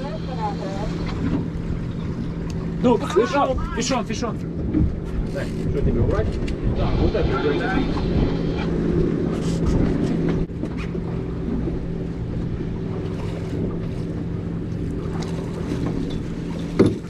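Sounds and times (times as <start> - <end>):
boat engine humming: 0.0 - 17.0
wind noise on microphone: 4.5 - 10.6
water wash: 6.1 - 17.0.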